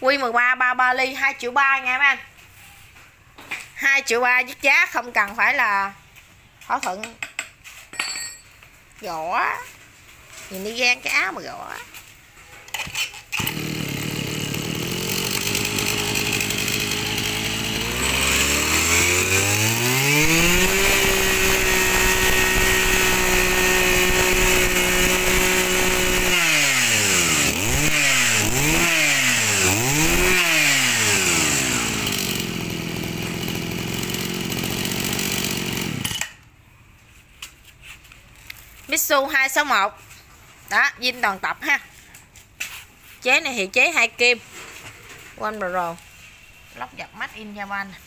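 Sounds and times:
brush cutter engine revving: 0:12.9 - 0:36.4.

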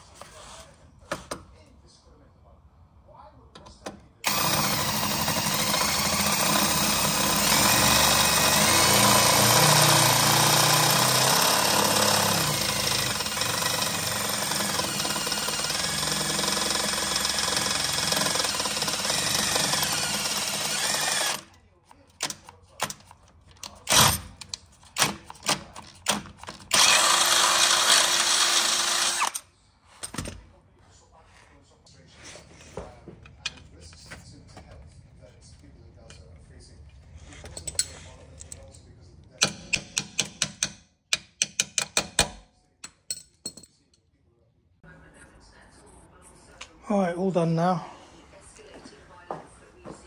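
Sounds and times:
cordless drill running: 0:04.2 - 0:21.5, 0:26.7 - 0:29.4.

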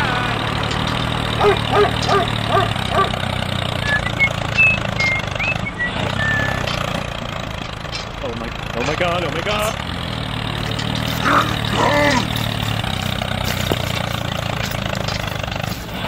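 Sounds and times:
tractor engine drone: 0:00.0 - 0:16.0
thin whistling calls: 0:03.8 - 0:06.7
quick chirps: 0:03.8 - 0:07.0, 0:10.8 - 0:16.0.

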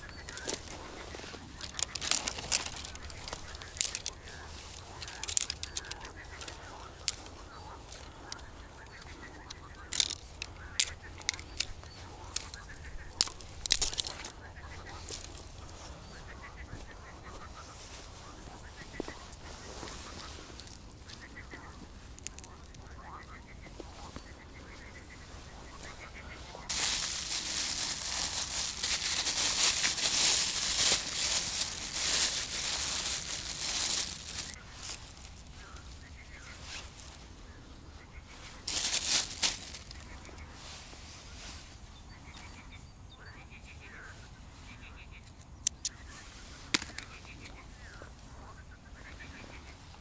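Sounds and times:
fishing gear clicks and rustles: 0:00.0 - 0:16.0, 0:18.8 - 0:24.2, 0:25.8 - 0:37.2, 0:38.6 - 0:40.4, 0:46.6 - 0:47.6
faint birds calling: 0:00.0 - 0:50.0.

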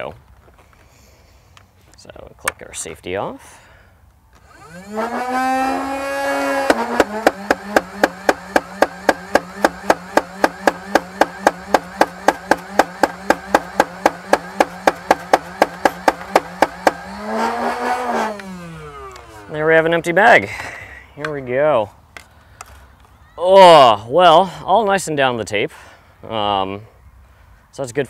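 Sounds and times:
toy blaster motor whine: 0:04.4 - 0:19.5
toy blaster firing full auto: 0:04.5 - 0:19.2.

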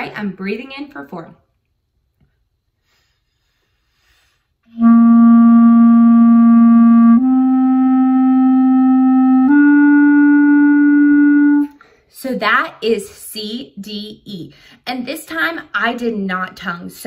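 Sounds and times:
clarinet held notes: 0:04.7 - 0:11.8.

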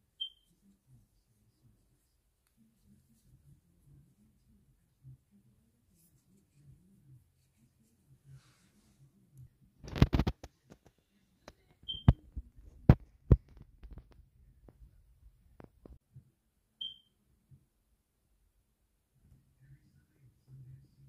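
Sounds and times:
short high beeps: 0:16.8 - 0:17.1.

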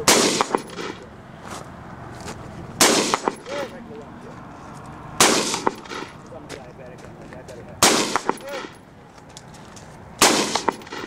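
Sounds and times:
rifle shot with echo: 0:00.0 - 0:01.1, 0:02.8 - 0:03.7, 0:05.2 - 0:06.2, 0:07.8 - 0:08.8, 0:10.2 - 0:11.0.

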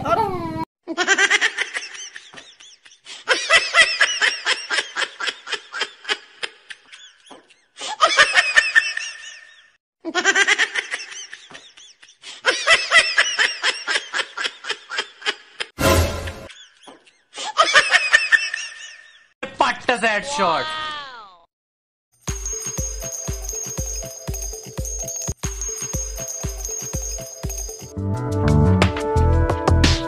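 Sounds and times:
high-pitched comedy laughter: 0:00.0 - 0:15.8, 0:16.5 - 0:19.3.

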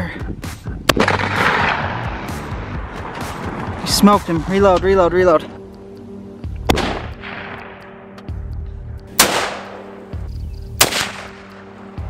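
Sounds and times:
rifle shots ringing out: 0:00.9 - 0:01.8, 0:09.2 - 0:09.9, 0:10.8 - 0:11.4.

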